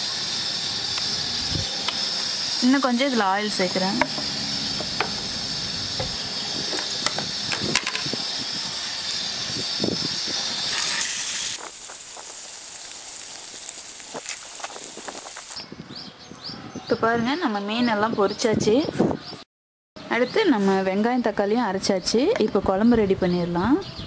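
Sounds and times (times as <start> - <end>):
oil sizzling in frying pan: 0.0 - 15.6
oil popping and spitting: 10.7 - 15.6.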